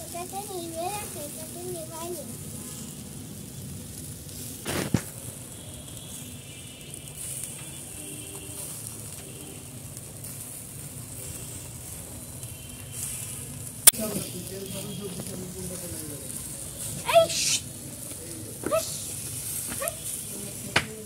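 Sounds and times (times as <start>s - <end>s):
chicken sizzling on charcoal grill: 0.0s - 21.0s.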